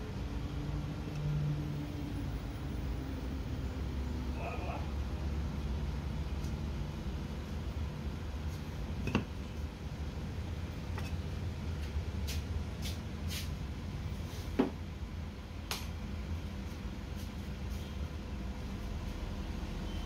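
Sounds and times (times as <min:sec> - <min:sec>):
steady low hum: 0:00.0 - 0:20.0
knocks on a work surface: 0:14.6 - 0:14.8.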